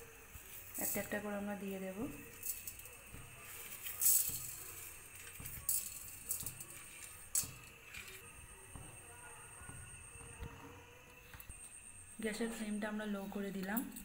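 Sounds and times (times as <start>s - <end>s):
spices rattling on metal pan: 0.5s - 10.3s.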